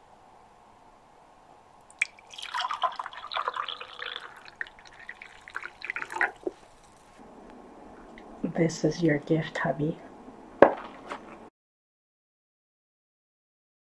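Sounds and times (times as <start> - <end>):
drips: 1.9 - 7.0
tea pouring into a mug: 1.9 - 7.0.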